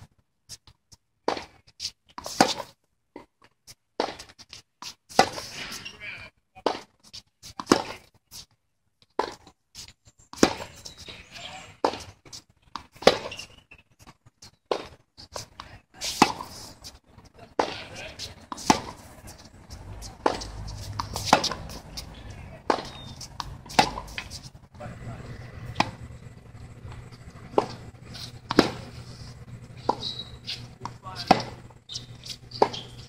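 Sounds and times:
racquets hitting tennis balls: 1.2s - 3.4s, 4.0s - 6.0s, 6.6s - 8.2s, 10.3s - 13.7s, 14.4s - 33.0s
tennis balls bouncing on court: 7.6s - 8.1s, 10.3s - 11.0s, 11.8s - 13.6s, 17.2s - 33.0s.

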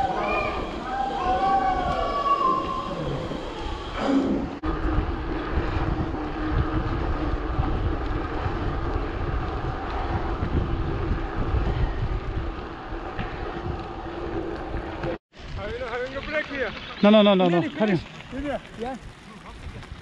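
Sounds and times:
bicycle tyres rolling on tarmac: 0.0s - 3.9s, 4.5s - 20.0s
wind buffeting microphone: 0.0s - 17.0s.

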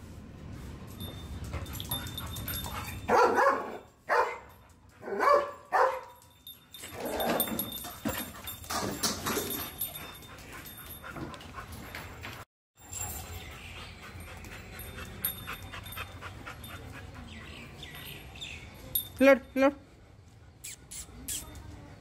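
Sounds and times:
dog barking and yelping: 3.0s - 4.4s, 5.0s - 6.1s.

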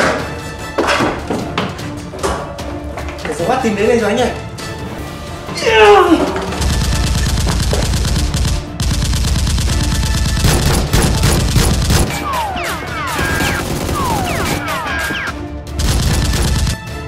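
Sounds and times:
automatic gunfire: 6.6s - 15.1s, 15.8s - 16.8s.

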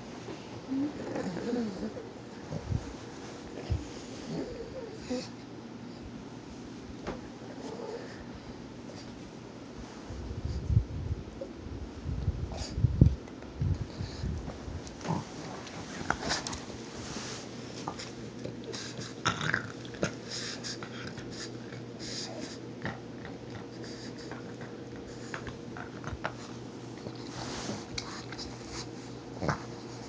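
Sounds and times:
dog growling low: 0.7s - 2.8s, 4.2s - 5.3s, 15.0s - 16.6s
dog snorting: 15.0s - 30.0s.

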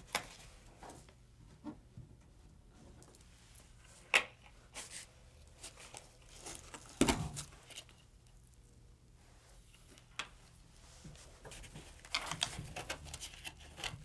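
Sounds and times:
cord rustling through cardboard: 3.0s - 8.5s, 9.4s - 14.0s.

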